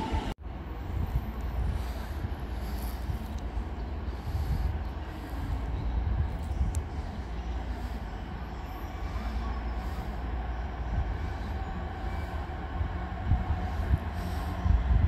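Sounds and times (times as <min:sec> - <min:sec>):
train rumbling: 0:00.0 - 0:15.0.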